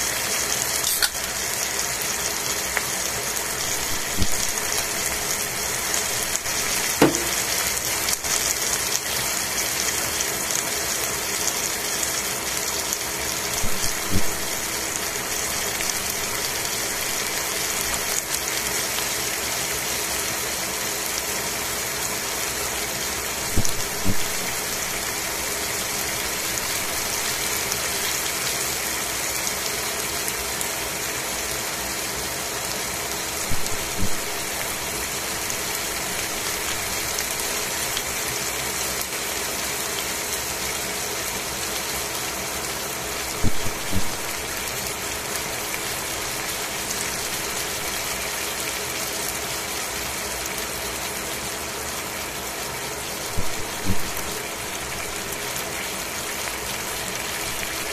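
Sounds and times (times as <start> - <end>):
chicken sizzling in a pan: 0.0 - 57.9
oil popping: 6.4 - 7.6.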